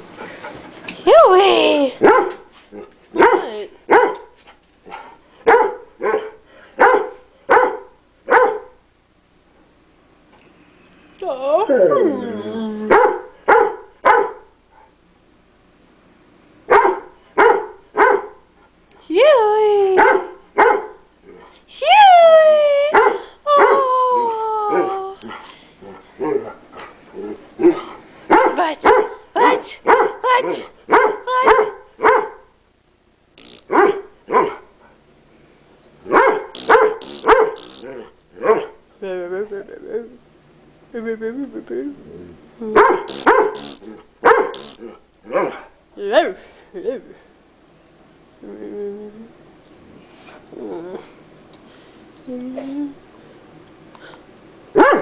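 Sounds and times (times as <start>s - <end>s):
dog barking: 2.0s - 2.4s, 3.2s - 4.3s, 5.0s - 8.8s, 12.9s - 14.9s, 16.7s - 18.4s, 20.0s - 21.0s, 22.9s - 23.8s, 27.6s - 32.5s, 33.7s - 34.7s, 36.1s - 37.6s, 38.4s - 38.8s, 42.8s - 43.6s, 44.2s - 44.6s, 45.3s - 45.7s, 54.8s - 55.0s.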